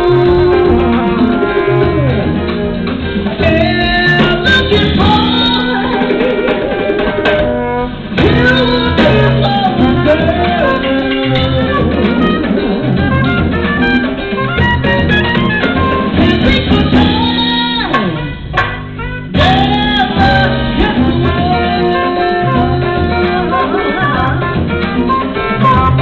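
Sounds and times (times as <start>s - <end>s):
woman singing: 0.0s - 2.4s, 3.3s - 7.6s, 8.2s - 13.0s, 16.1s - 18.4s, 19.4s - 26.0s
jazz band playing: 0.0s - 26.0s.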